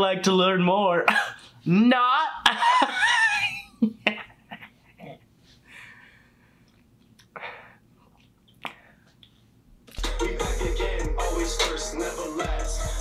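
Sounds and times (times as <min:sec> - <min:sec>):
hip hop track with rapping: 0:10.0 - 0:13.0.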